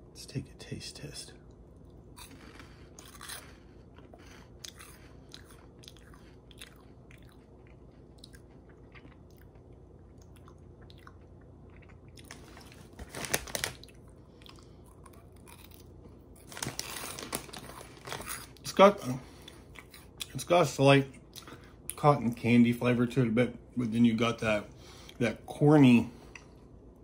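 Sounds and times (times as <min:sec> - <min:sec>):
crunchy snack being chewed: 0:01.8 - 0:18.7, 0:19.4 - 0:20.4.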